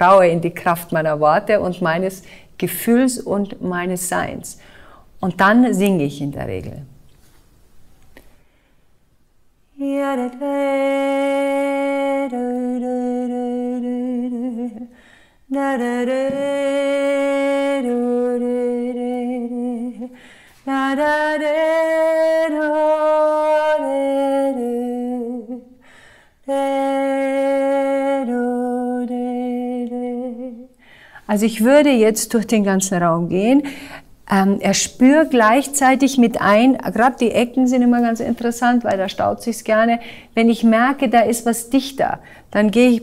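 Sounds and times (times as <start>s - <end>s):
singer breathing: 2.2s - 2.6s, 4.6s - 5.2s, 8.3s - 9.0s, 14.9s - 15.5s, 20.1s - 20.7s, 25.8s - 26.4s, 30.7s - 31.3s, 33.6s - 34.2s, 40.0s - 40.4s, 42.2s - 42.5s
woman singing sustained notes: 9.7s - 25.8s.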